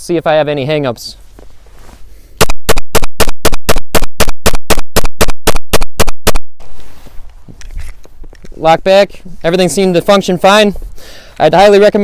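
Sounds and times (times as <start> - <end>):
pistol rapid fire: 2.4 - 6.5.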